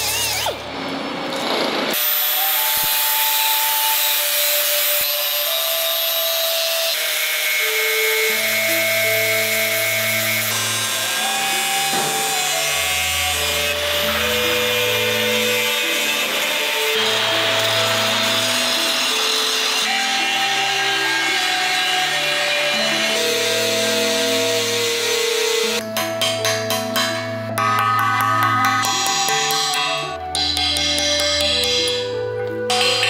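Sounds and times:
grinder on metal: 0:00.0 - 0:26.4
background music with held notes: 0:02.0 - 0:33.0.

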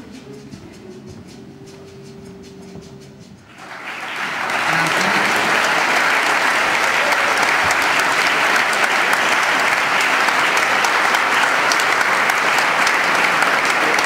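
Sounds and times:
audience applauding: 0:03.5 - 0:14.0.

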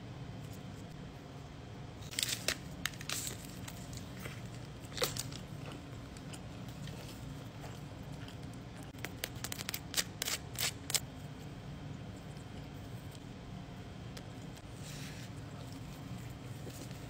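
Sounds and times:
low steady hum: 0:00.0 - 0:17.0
crunching of a crisp tortilla: 0:02.0 - 0:11.1.

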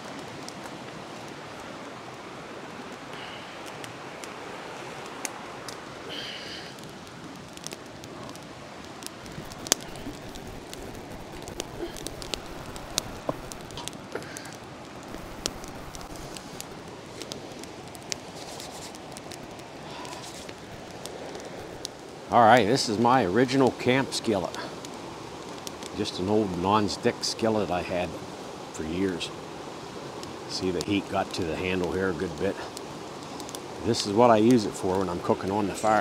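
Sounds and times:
campfire crackling: 0:00.0 - 0:36.0
steady hiss of fire: 0:00.0 - 0:36.0
sharp pops of fire: 0:02.9 - 0:26.2, 0:29.4 - 0:34.1.

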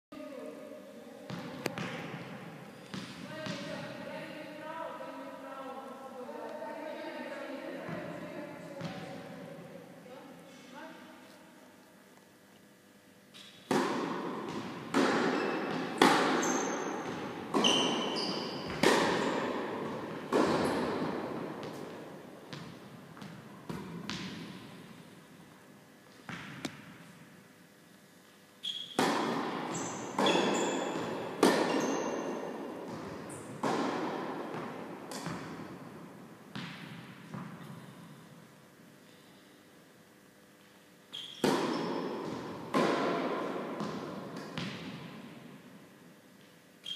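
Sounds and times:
tennis balls bouncing on court: 0:01.3 - 0:04.0, 0:07.9 - 0:09.5, 0:13.3 - 0:25.0, 0:26.1 - 0:27.1, 0:28.7 - 0:38.1, 0:41.2 - 0:45.5
tennis balls struck by rackets: 0:01.3 - 0:04.0, 0:13.3 - 0:25.0, 0:26.2 - 0:27.1, 0:28.7 - 0:38.1, 0:41.2 - 0:45.6.

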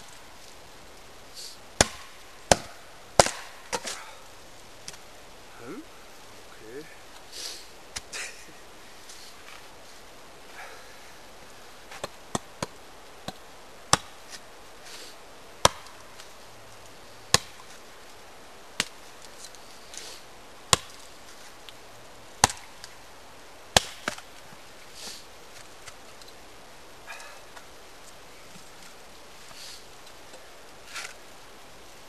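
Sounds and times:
chopping into wooden pole: 0:01.8 - 0:04.0, 0:15.6 - 0:15.9, 0:17.3 - 0:17.6.

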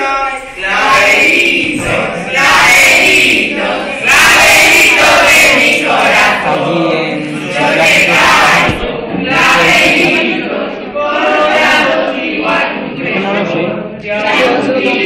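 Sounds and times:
group of young voices singing: 0:00.0 - 0:15.0.

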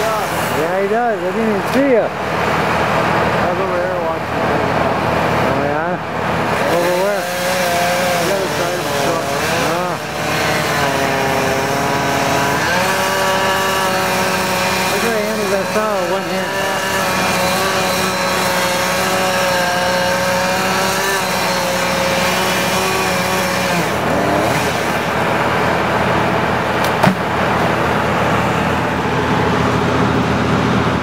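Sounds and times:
engine running: 0:00.0 - 0:31.0
sharp knock: 0:26.8 - 0:27.3.

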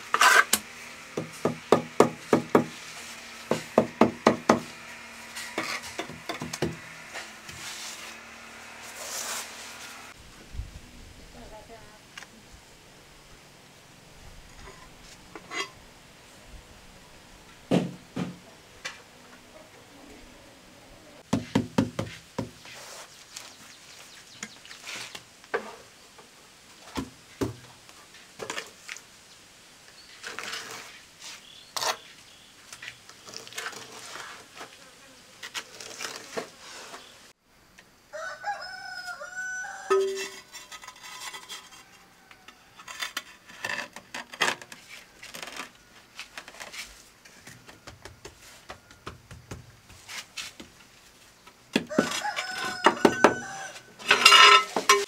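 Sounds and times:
rooster crowing: 0:38.1 - 0:40.3, 0:51.8 - 0:54.0.

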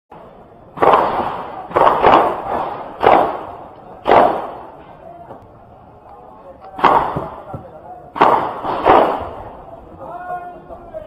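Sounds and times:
echoing gunshots: 0:00.7 - 0:04.8, 0:06.8 - 0:07.5, 0:08.1 - 0:09.7.

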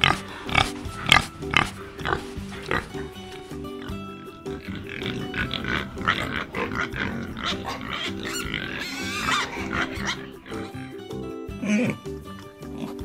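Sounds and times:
background music: 0:00.0 - 0:13.0
pigs grunting and squealing: 0:00.0 - 0:13.0.

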